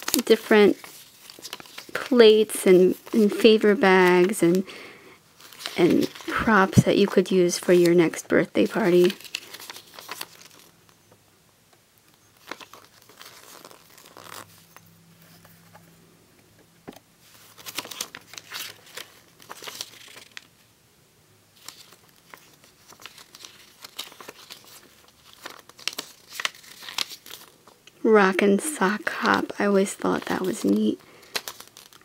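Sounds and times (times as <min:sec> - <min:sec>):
catalog pages rustling: 0:00.0 - 0:04.8, 0:05.4 - 0:11.0, 0:12.2 - 0:15.9, 0:16.9 - 0:20.6, 0:21.6 - 0:32.0.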